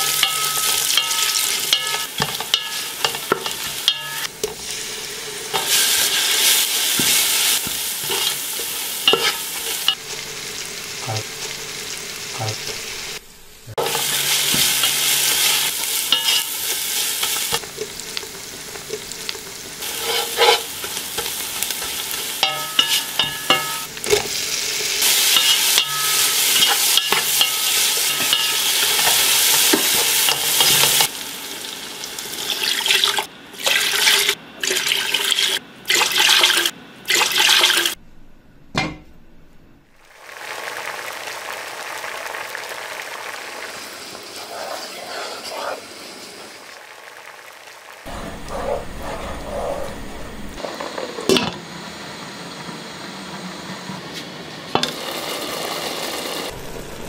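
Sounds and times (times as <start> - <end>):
oil sizzling: 0.0 - 38.0, 39.9 - 57.0
wooden spatula scraping pan: 19.8 - 23.7.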